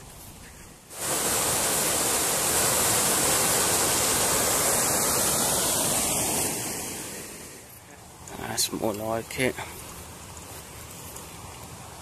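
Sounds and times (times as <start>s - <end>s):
water rushing over a weir: 0.9s - 12.0s.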